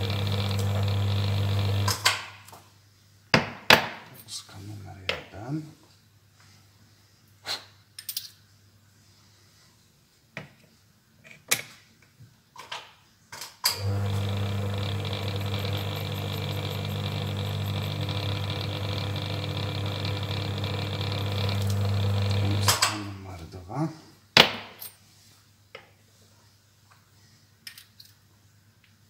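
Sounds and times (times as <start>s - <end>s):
electric motor humming: 0.0s - 2.0s, 13.8s - 22.8s.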